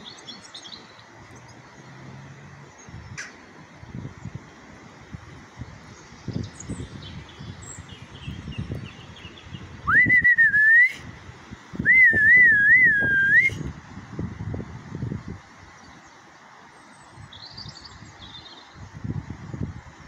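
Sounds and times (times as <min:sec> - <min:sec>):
person whistling: 0:09.9 - 0:11.0, 0:11.9 - 0:13.6.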